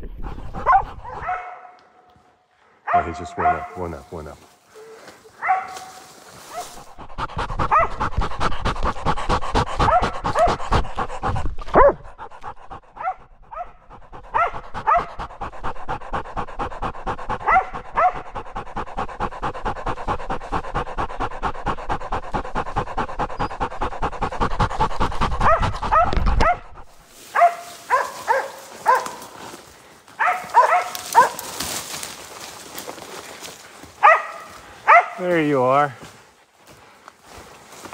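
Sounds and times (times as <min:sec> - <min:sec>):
dog panting hard: 0:00.0 - 0:01.4, 0:06.4 - 0:37.9
dogs barking: 0:00.4 - 0:02.2, 0:02.8 - 0:04.3, 0:05.3 - 0:29.5, 0:30.2 - 0:32.2, 0:33.8 - 0:35.7
dog yelping: 0:05.4 - 0:05.9, 0:07.7 - 0:08.0, 0:13.0 - 0:15.1, 0:17.4 - 0:18.2, 0:25.4 - 0:26.7, 0:27.4 - 0:29.2, 0:30.2 - 0:31.5, 0:34.0 - 0:35.2.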